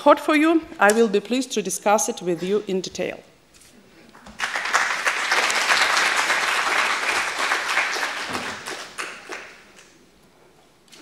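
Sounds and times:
audience applauding: 4.3 - 9.7.

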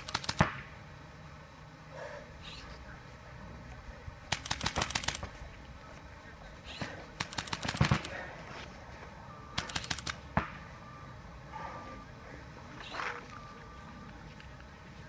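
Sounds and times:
paintball markers firing: 0.0 - 0.7, 4.3 - 5.4, 7.2 - 8.2, 9.6 - 10.6.

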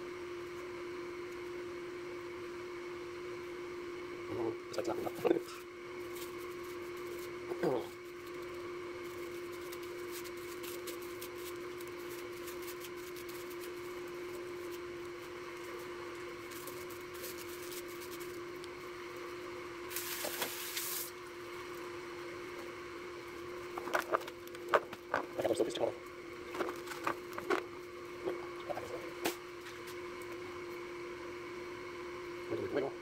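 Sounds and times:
steady hum: 0.0 - 33.0
breading mix rustling and crackling: 5.3 - 30.4.

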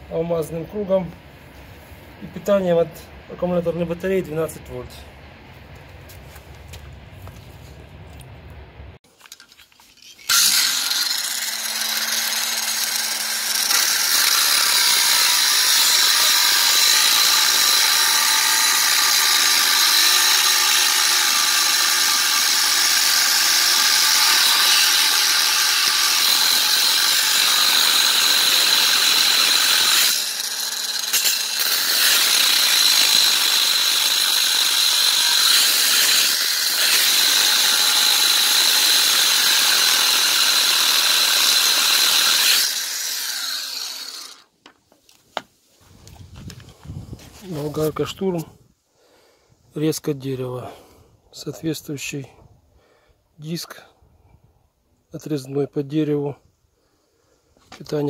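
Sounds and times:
angle grinder cutting steel: 10.0 - 44.5.

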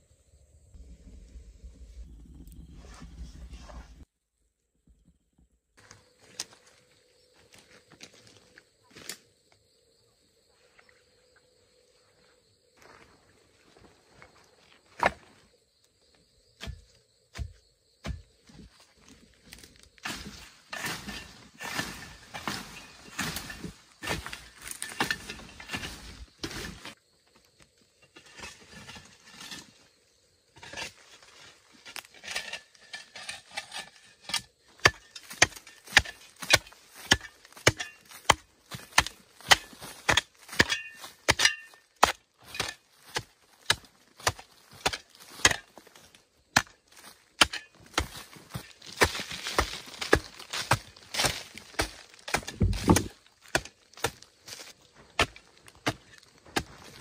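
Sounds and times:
metal hoe chopping into clay: 16.6 - 18.3, 20.0 - 26.8, 32.2 - 45.8, 46.5 - 46.8, 47.4 - 54.6, 55.2 - 57.0
loose earth falling: 16.6 - 57.0.

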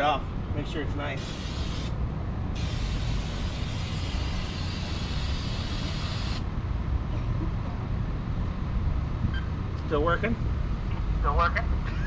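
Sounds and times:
steady low rumble: 0.0 - 12.0
aerosol can spraying: 1.2 - 2.0, 2.6 - 6.4.

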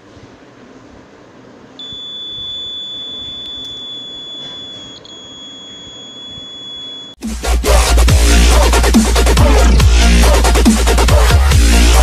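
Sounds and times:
high-pitched alarm buzzer tone: 1.8 - 7.2.

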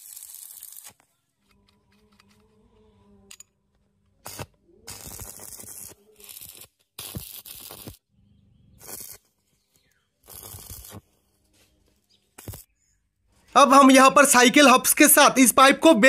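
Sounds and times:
arc welding crackling: 0.0 - 1.1, 4.2 - 8.0, 8.8 - 12.7.

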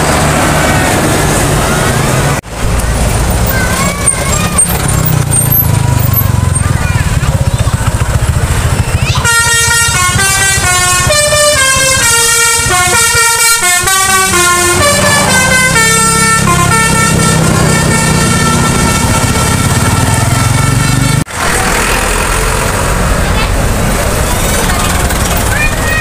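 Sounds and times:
bus engine rumble: 0.0 - 26.0
bus horn playing a tune: 9.2 - 21.3.

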